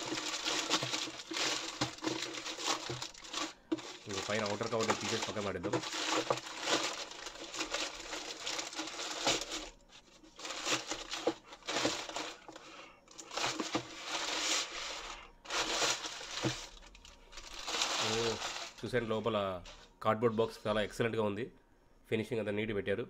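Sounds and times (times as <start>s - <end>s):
plastic mailer crinkling: 0.0s - 19.9s.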